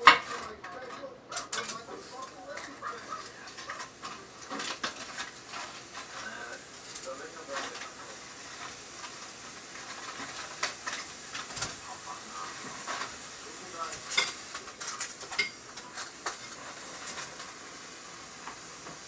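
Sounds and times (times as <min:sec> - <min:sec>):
utensils clinking and scraping: 0:00.0 - 0:09.2, 0:13.8 - 0:17.4
food sizzling in a frying pan: 0:01.4 - 0:19.0.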